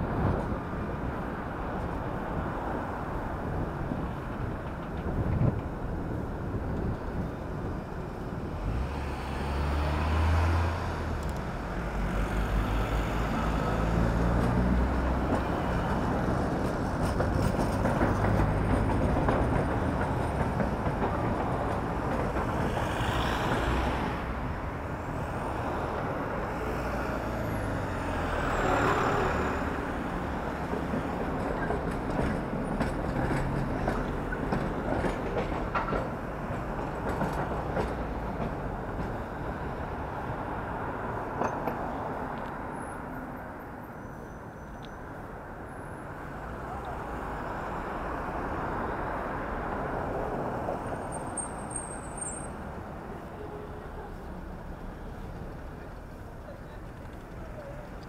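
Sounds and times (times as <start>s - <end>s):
wind buffeting microphone: 0.0s - 8.7s
cars passing: 0.0s - 58.0s
trams passing: 0.0s - 58.0s.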